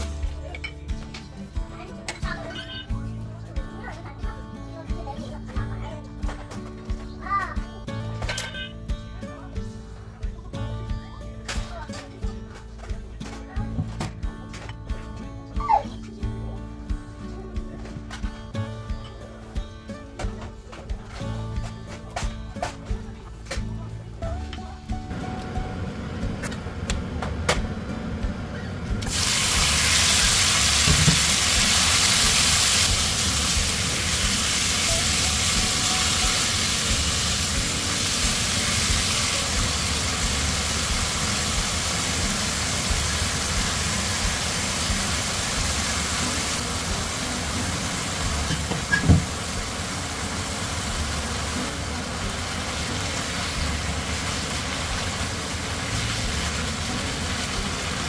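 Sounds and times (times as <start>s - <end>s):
meat sizzling in a pan: 29.0s - 58.0s.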